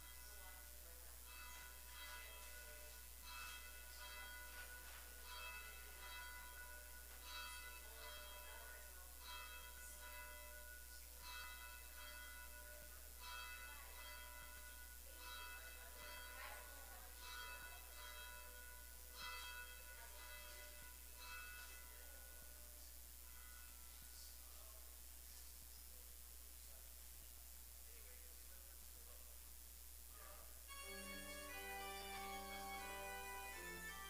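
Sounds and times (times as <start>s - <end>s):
faint church bells ringing: 0.0s - 24.8s, 30.2s - 34.0s.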